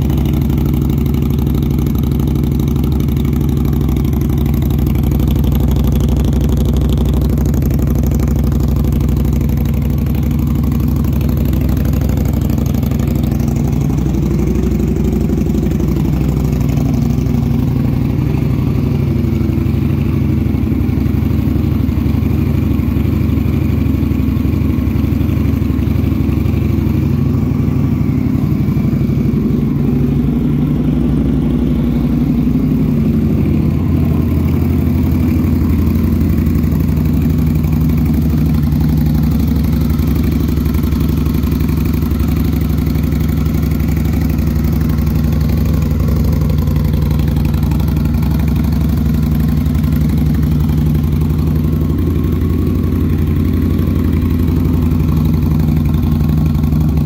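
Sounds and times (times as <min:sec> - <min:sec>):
motorcycle engine idling: 0:00.0 - 0:57.0.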